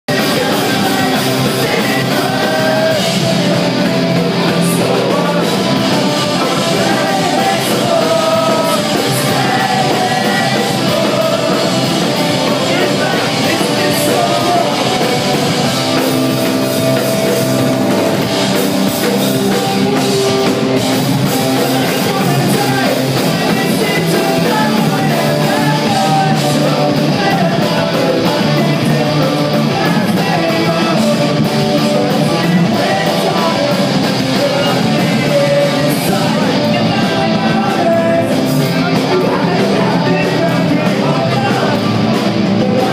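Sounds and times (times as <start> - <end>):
electric guitars: 0.0 - 42.9
punk rock band playing: 0.0 - 42.9
person singing into a microphone: 0.1 - 18.3, 19.0 - 42.9.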